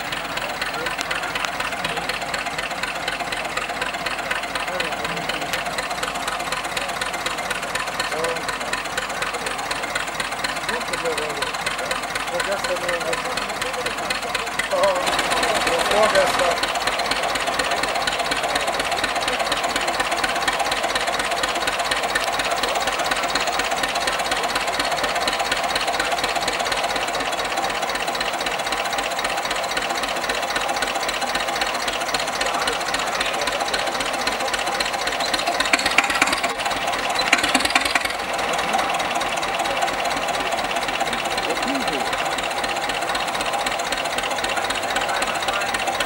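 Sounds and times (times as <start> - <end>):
tractor engine idling: 0.0 - 46.0.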